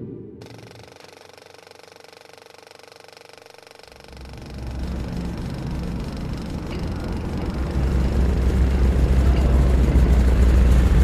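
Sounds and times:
turboprop engines droning: 0:00.0 - 0:11.0.

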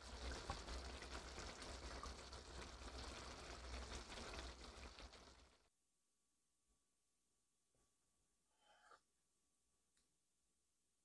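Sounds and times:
sauce sizzling in a frying pan: 0:00.0 - 0:05.6.

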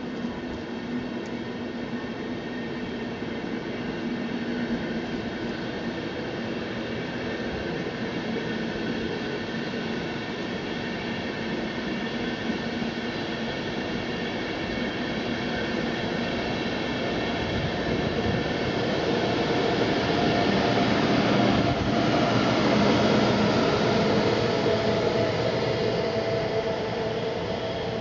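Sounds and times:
train wheel and rail rumble: 0:00.0 - 0:28.0.

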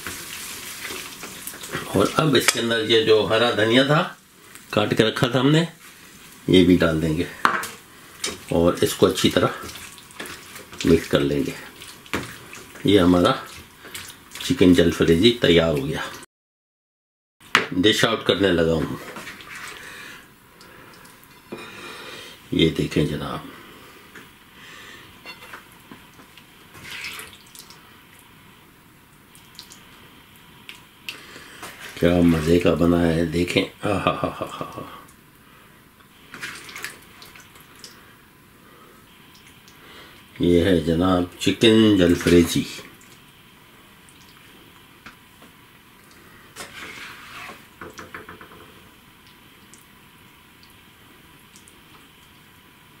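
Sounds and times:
spoon scraping plate: 0:25.2 - 0:25.6, 0:46.6 - 0:47.7.

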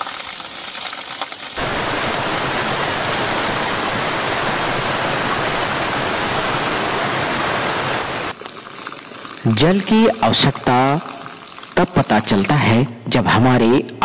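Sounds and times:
water jetting onto rock: 0:00.0 - 0:12.8
waterfall rushing: 0:01.6 - 0:08.4.

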